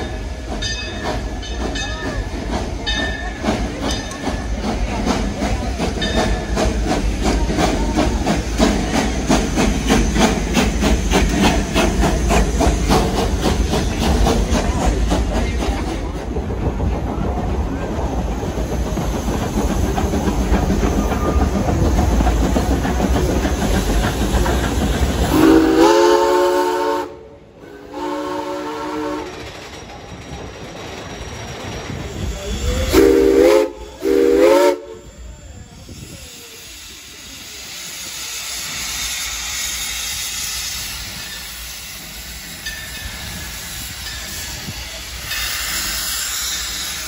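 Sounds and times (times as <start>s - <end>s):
steam locomotive exhaust chuffs: 0.0s - 47.0s
train rolling: 0.0s - 47.0s
steam whistle blasts: 25.3s - 29.4s, 32.9s - 35.2s.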